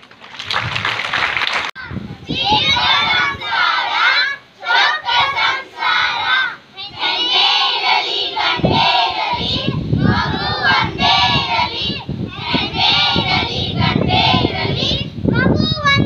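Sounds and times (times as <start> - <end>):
children shouting together: 1.8 - 10.8.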